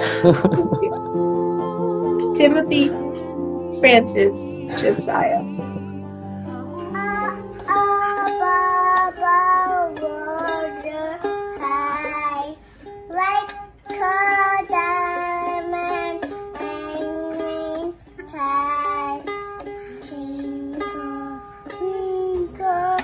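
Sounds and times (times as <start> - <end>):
ukulele strumming: 0.0 - 23.0
toddler singing: 6.8 - 23.0.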